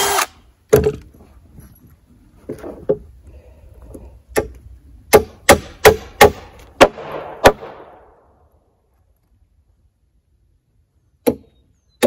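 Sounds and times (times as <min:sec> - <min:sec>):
hammer blows on wooden boards: 0:04.3 - 0:07.8.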